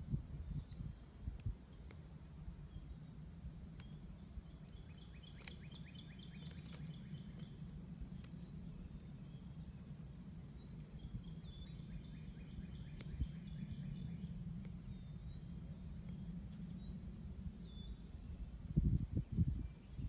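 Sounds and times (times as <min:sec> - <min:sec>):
low background rumble: 0:00.0 - 0:20.0
birds chirping: 0:00.4 - 0:18.3.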